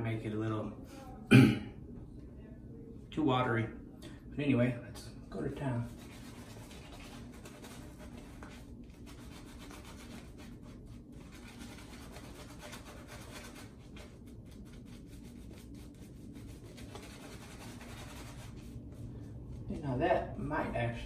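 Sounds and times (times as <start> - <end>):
shaving brush rubbing on skin: 5.7 - 19.8.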